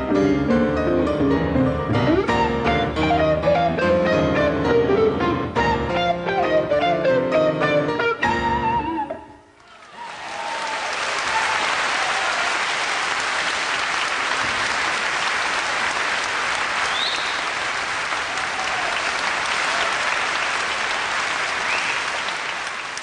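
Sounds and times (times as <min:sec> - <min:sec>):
audience applauding: 0:09.6 - 0:23.0.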